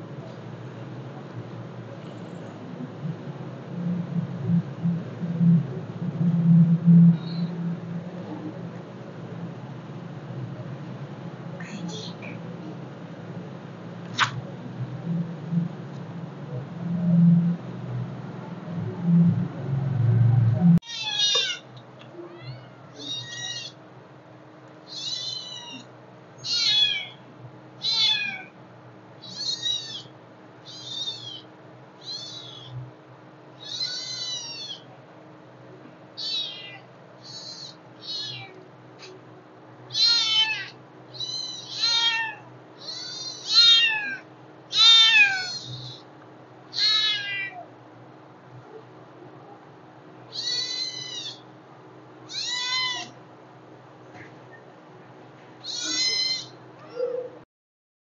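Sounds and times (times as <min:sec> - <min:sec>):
kitten meowing: 0:20.8 - 0:21.6, 0:22.3 - 0:23.8, 0:24.9 - 0:27.2, 0:27.8 - 0:28.5, 0:29.2 - 0:30.1, 0:30.7 - 0:31.4, 0:32.0 - 0:32.7, 0:33.6 - 0:34.8, 0:36.2 - 0:38.5, 0:39.9 - 0:46.0, 0:46.7 - 0:47.6, 0:50.3 - 0:51.4, 0:52.3 - 0:53.1, 0:55.6 - 0:57.1.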